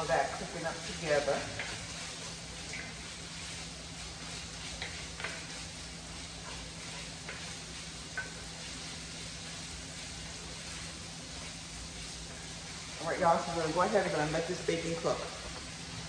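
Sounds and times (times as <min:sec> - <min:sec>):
bacon and onion sizzling: 0:00.0 - 0:16.0
spatula scraping pan: 0:00.2 - 0:12.9.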